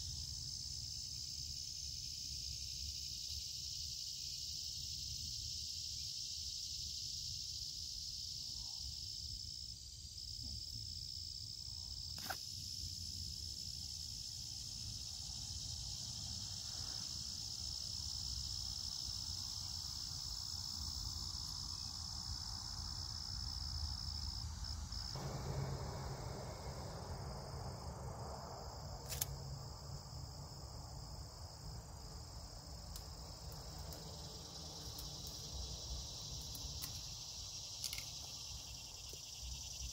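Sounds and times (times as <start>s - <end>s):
high-pitched insect chorus: 0.0s - 39.9s
low background rumble: 24.6s - 37.7s
sharp clicks: 29.0s - 29.4s.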